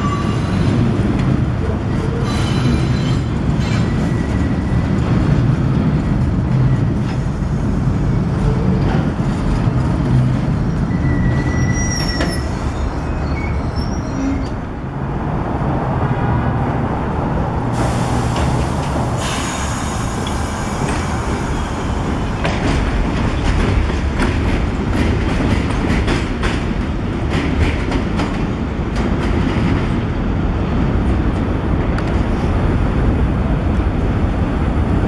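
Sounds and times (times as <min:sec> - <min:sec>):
train wheels rumbling on rail: 0:00.0 - 0:35.0
wheel squeals: 0:10.9 - 0:14.6.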